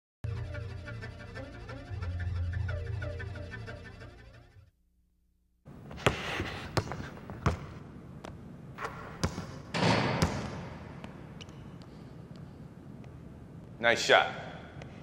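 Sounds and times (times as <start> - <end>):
basketball bouncing on wood floor: 5.9 - 7.8, 8.8 - 11.6.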